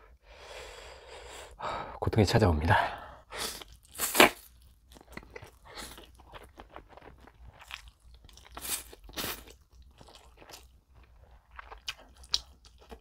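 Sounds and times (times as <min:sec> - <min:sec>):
wet chewing: 0:03.6 - 0:13.0.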